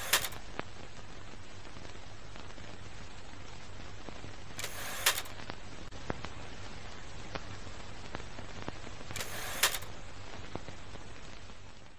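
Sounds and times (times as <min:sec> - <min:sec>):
loud bursts of noise: 0:00.0 - 0:00.5, 0:04.3 - 0:05.9, 0:09.0 - 0:10.8
crackling clicks: 0:00.0 - 0:11.9
steady hiss: 0:00.0 - 0:11.9.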